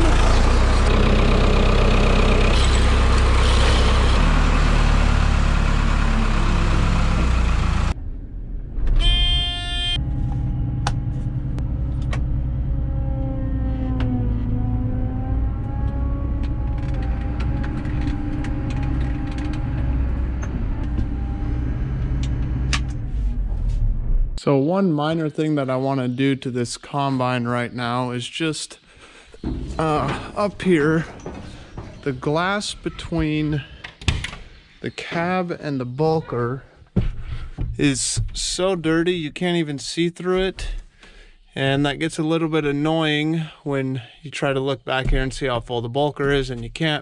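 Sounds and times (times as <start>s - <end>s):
tractor diesel engine running: 0.0s - 23.6s, 28.9s - 34.0s
short steady tone: 9.0s - 11.0s.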